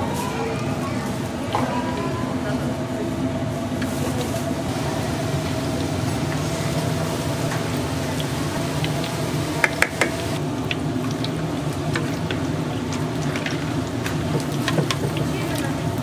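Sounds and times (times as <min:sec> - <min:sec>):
kitchen hum: 0:00.0 - 0:16.0
food deep-frying in oil: 0:04.6 - 0:16.0.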